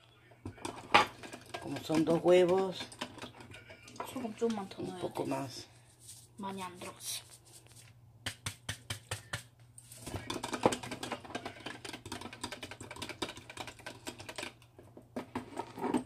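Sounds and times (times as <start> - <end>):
whisk beating eggs: 0.5 - 5.4, 8.4 - 14.7.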